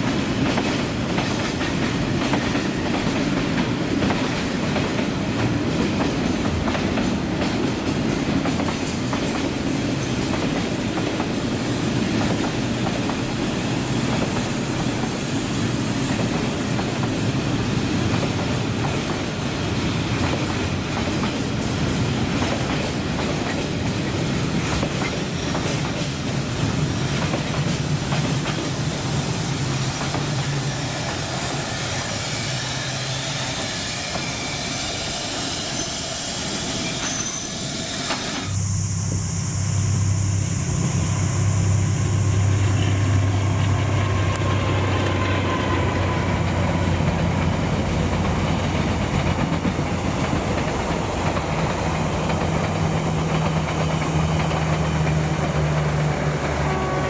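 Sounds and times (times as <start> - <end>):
freight train rolling past: 0.0 - 57.0
passenger train running past: 0.0 - 57.0
low hum: 38.6 - 44.6.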